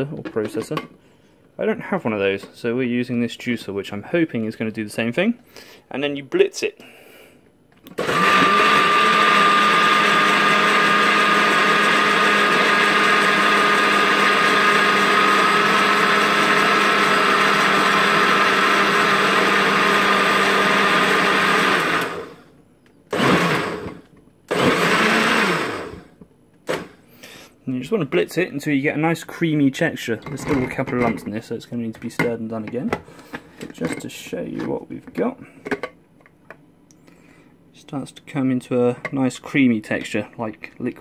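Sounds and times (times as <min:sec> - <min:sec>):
blender motor whining: 0:07.9 - 0:22.4, 0:23.1 - 0:26.9.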